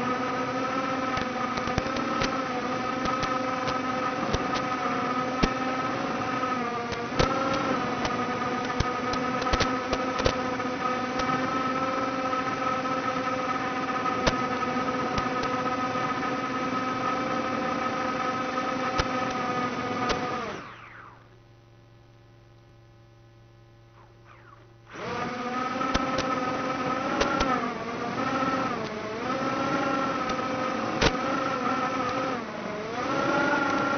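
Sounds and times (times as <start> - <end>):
quadcopter motors whining: 0.0 - 21.4, 23.9 - 33.9
sharp clicks: 1.1 - 2.4, 3.0 - 4.8, 6.9 - 10.4, 25.8 - 26.4.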